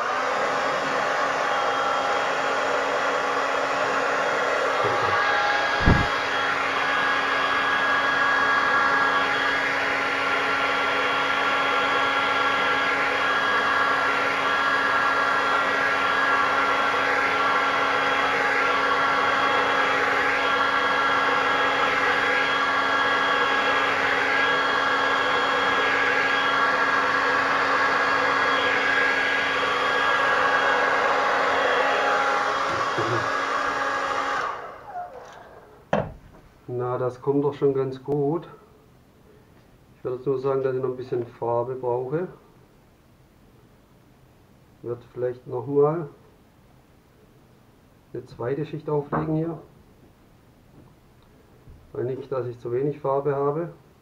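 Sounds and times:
hair dryer blowing: 0.0 - 36.2.

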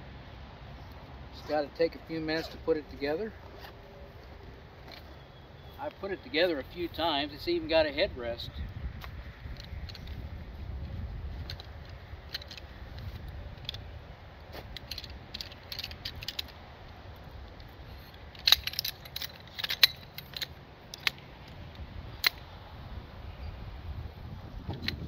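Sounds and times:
metal chair poles clicking: 18.0 - 21.2.

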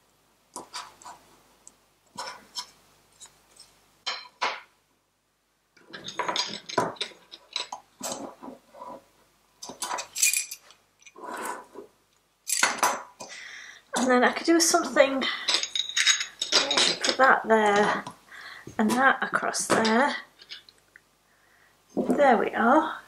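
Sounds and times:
utensils knocking on wooden table: 4.1 - 4.7, 5.8 - 8.6, 12.5 - 13.1.

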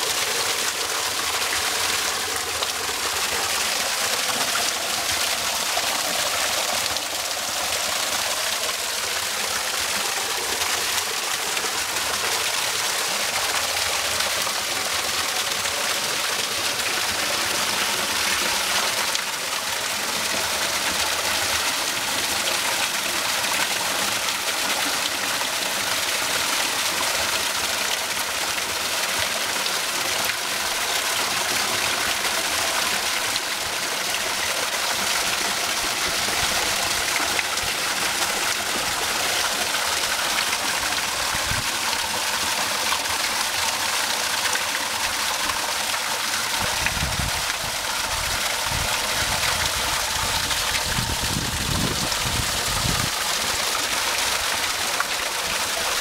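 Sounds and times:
waterfall splashing into pool: 0.0 - 56.0.

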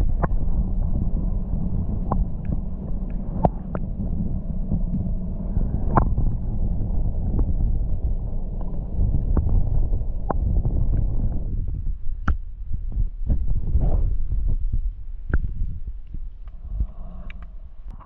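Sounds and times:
muffled underwater rumble: 0.0 - 18.0
sharp underwater clicks: 2.0 - 3.9, 12.2 - 12.4.

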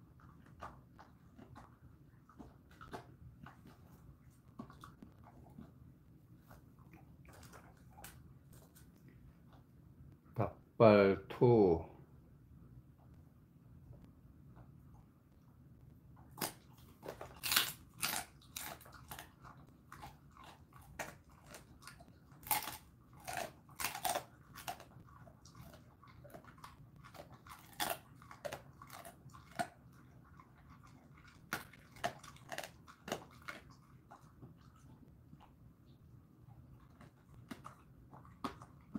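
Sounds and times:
dog crunching bone: 0.0 - 9.6, 16.2 - 35.5, 36.8 - 38.9.

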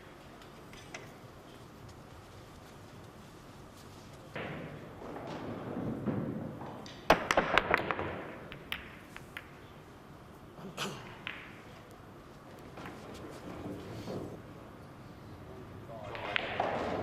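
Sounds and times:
billiard balls clacking: 4.3 - 9.7, 11.0 - 12.0
balls rolling clicks: 4.4 - 9.7, 11.0 - 13.9.

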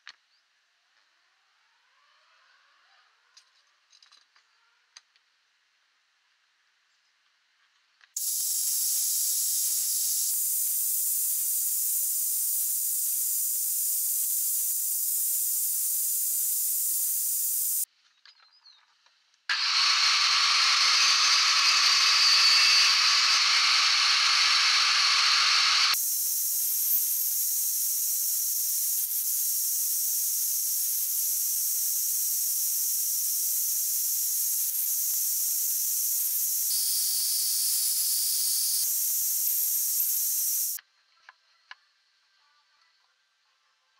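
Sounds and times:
table saw cutting board: 19.5 - 40.8
table saw running: 19.5 - 40.8.

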